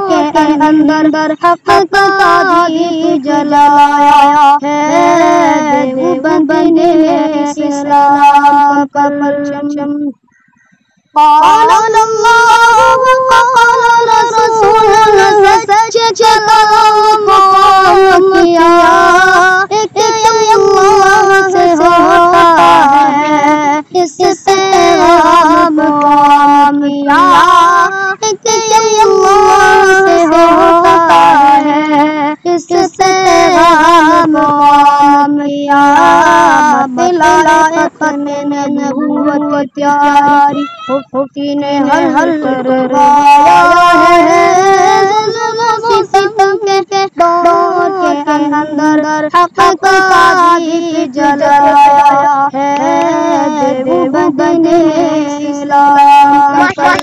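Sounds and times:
boy singing: 0.0s - 10.5s, 11.2s - 57.0s.

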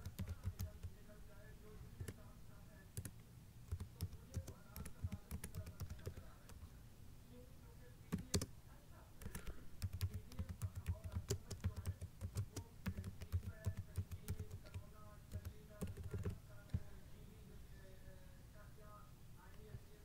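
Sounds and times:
keyboard typing: 0.0s - 1.0s, 2.9s - 6.6s, 8.1s - 8.5s, 9.2s - 16.9s.

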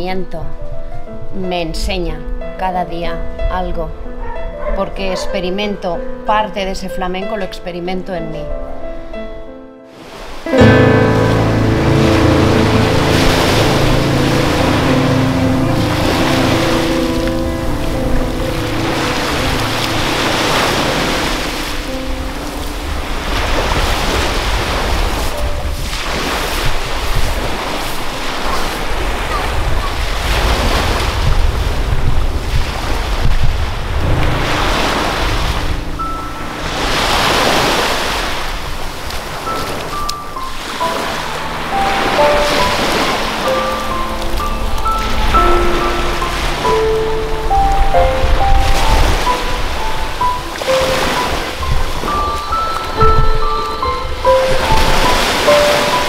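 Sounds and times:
waves washing onto shore: 9.9s - 56.0s
low drone: 10.5s - 25.6s, 33.6s - 56.0s
wind rumbling on microphone: 12.8s - 56.0s.

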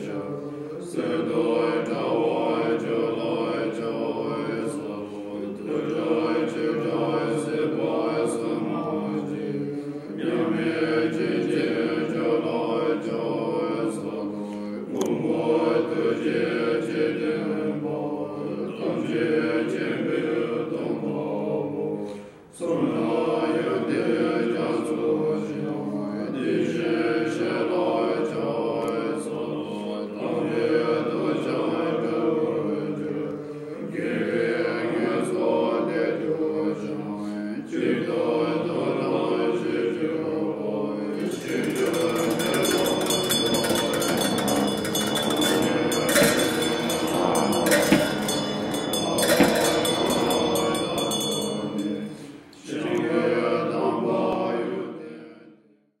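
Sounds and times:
monks chanting in low voices: 0.0s - 55.8s
metal percussion clashing: 41.2s - 52.5s.

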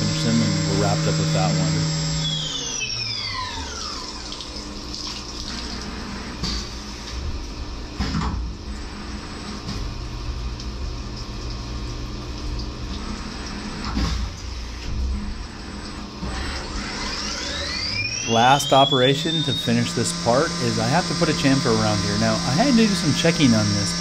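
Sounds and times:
machine spindle whine: 0.0s - 4.8s, 13.0s - 24.0s
loud machine noises: 0.0s - 9.9s, 12.9s - 24.0s
coolant splashing: 0.0s - 24.0s.

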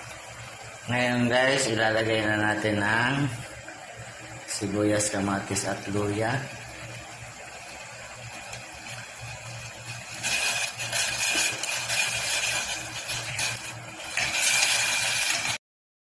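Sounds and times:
vegetables sliding into pot: 10.0s - 15.6s.

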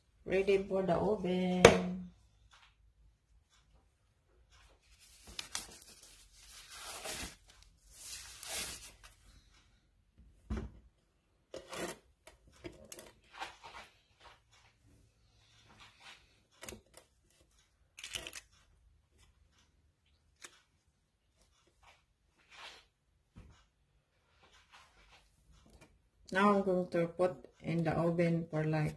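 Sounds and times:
plastic gloves crinkling: 4.9s - 9.2s.

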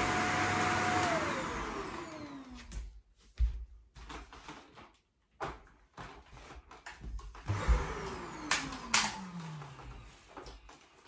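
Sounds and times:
vacuum cleaner motor winding down: 0.0s - 2.8s, 7.4s - 10.2s.

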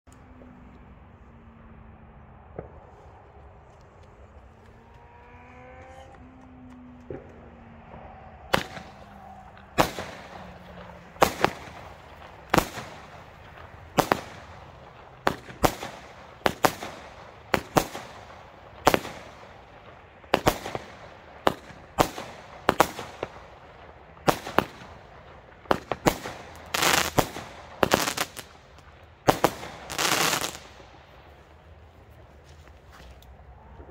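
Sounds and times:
long noisy firework blasts: 0.1s - 33.9s
fireworks bangs with echo: 6.7s - 31.5s.

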